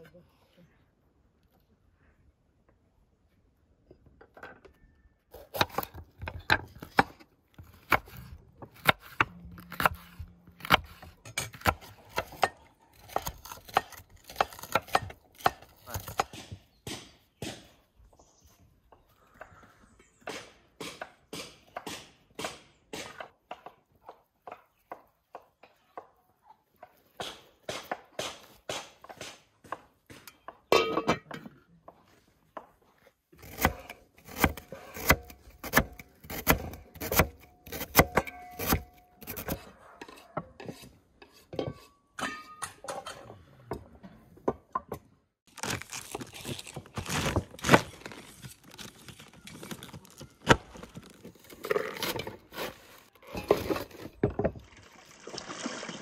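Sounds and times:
knife crunching through cabbage: 7.6s - 16.4s, 45.5s - 54.1s
knife chopping on wooden board: 7.7s - 17.7s.

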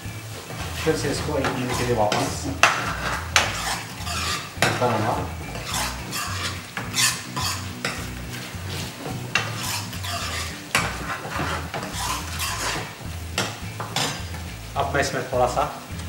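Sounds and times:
metal ladle scraping pan: 0.0s - 14.8s
gravy sizzling: 0.0s - 16.0s
ladle knocking against pan: 1.4s - 8.2s.

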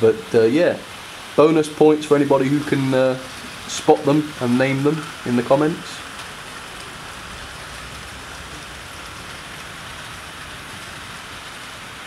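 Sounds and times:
model train wheels rumbling on rail: 0.0s - 12.0s.

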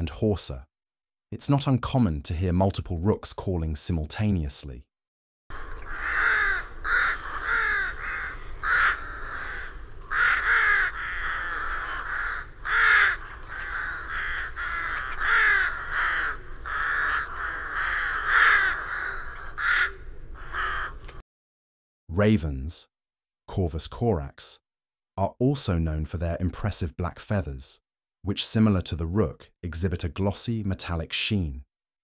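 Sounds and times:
rooks cawing: 5.5s - 21.2s.

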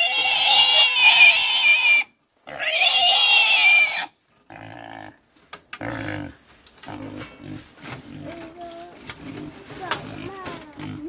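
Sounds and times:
pig squealing: 0.0s - 5.1s.

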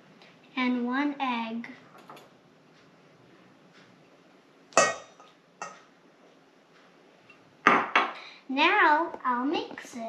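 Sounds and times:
ceramic bowl clinking on steel bowl: 4.8s - 5.8s.

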